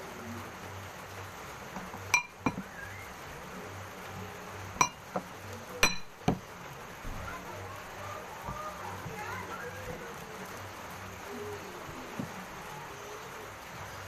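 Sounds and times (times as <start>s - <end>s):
glass clinking on table: 2.1s - 2.6s, 4.8s - 5.2s, 5.8s - 6.1s.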